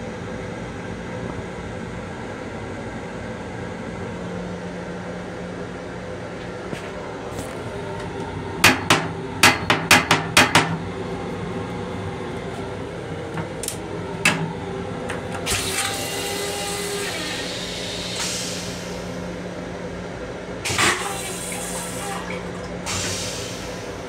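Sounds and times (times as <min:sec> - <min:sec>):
steady low hum: 0:00.0 - 0:15.9
hiss: 0:17.0 - 0:19.1, 0:22.9 - 0:24.0.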